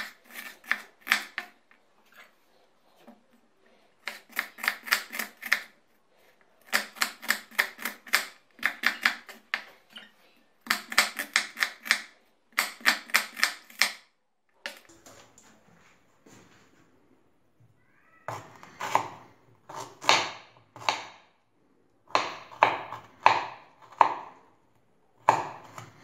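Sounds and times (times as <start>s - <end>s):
knife chopping on wooden board: 18.3s - 21.2s, 22.1s - 24.3s, 25.2s - 26.0s.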